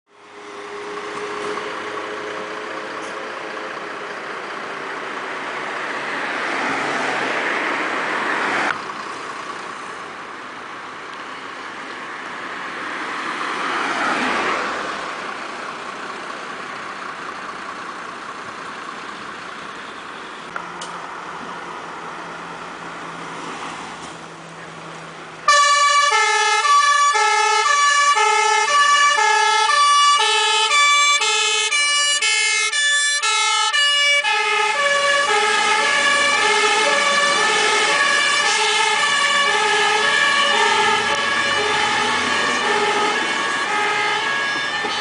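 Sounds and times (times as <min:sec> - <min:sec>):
two-tone siren: 0:25.5 - 0:45.0.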